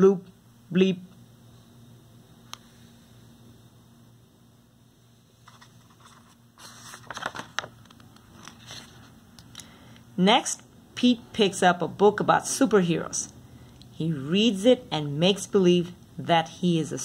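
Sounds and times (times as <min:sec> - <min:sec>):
book page turning: 0:05.4 - 0:09.2
paper rustling and light clicks: 0:05.4 - 0:09.7.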